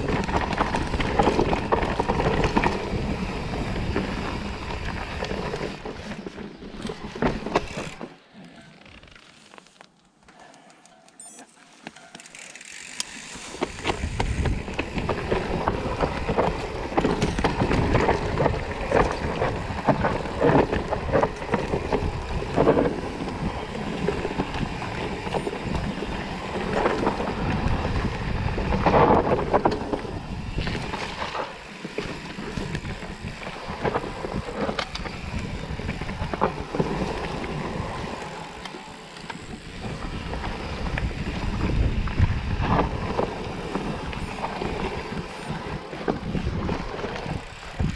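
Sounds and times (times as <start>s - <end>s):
bike tyres rumbling on dirt: 0.0s - 9.8s, 12.6s - 47.9s
bike knocking and rattling: 0.0s - 10.4s, 11.7s - 47.9s
wind buffeting microphone: 13.7s - 38.6s, 39.4s - 47.9s.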